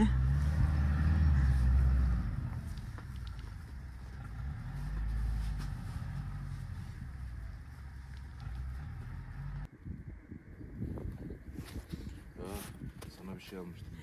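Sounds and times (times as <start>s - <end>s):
truck engine under load: 0.0s - 9.7s.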